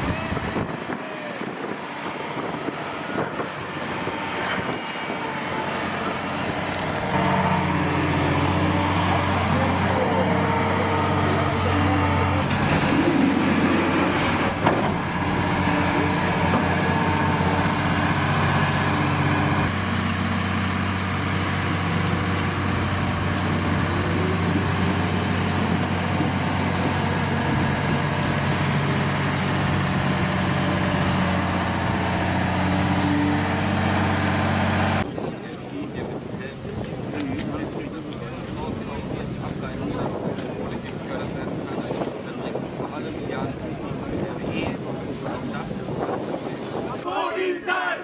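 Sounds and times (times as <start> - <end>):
excavator diesel engine running: 0.0 - 35.3.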